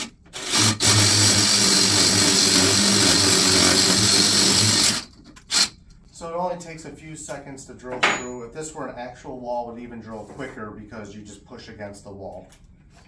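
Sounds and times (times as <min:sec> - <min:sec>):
hammer drill drilling concrete: 0:00.0 - 0:05.7.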